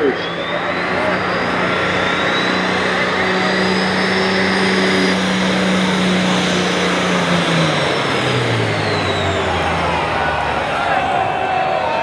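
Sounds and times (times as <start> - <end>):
tractor engine drone: 0.0 - 12.0
turbocharger whistle: 0.0 - 12.0.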